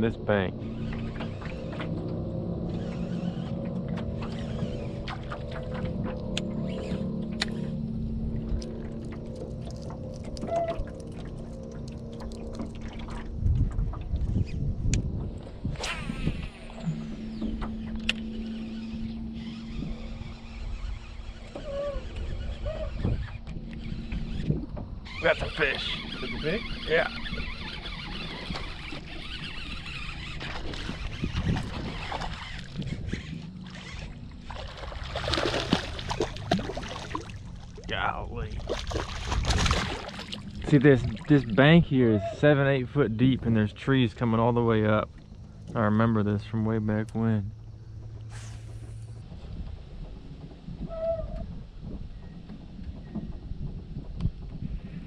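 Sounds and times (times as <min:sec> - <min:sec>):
steady low rumble: 0:00.0 - 0:25.1, 0:29.6 - 0:55.0
water splashing: 0:08.2 - 0:13.8, 0:27.8 - 0:42.0
fish splashing at water surface: 0:33.6 - 0:37.9, 0:38.6 - 0:41.3
low thumps against boat: 0:49.2 - 0:54.8.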